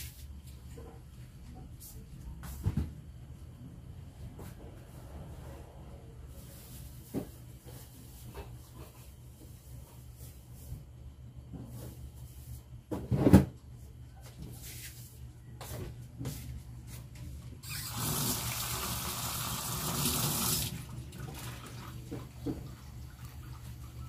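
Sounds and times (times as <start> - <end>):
running water: 17.6 - 24.0.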